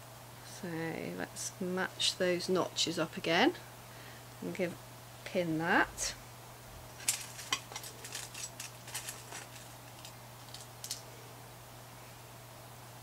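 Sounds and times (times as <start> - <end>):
pins clicking and scraping fabric: 7.0 - 11.0.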